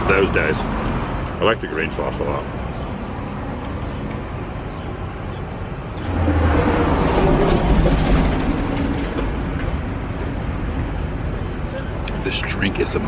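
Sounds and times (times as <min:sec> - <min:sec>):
large vehicle passing by: 0:05.8 - 0:11.2.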